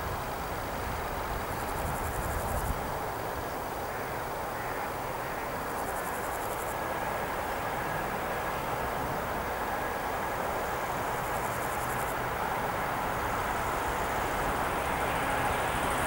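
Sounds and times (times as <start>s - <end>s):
steady rushing background noise: 0.0s - 16.0s
insects chirring: 1.6s - 2.8s, 3.4s - 6.8s, 10.5s - 12.2s.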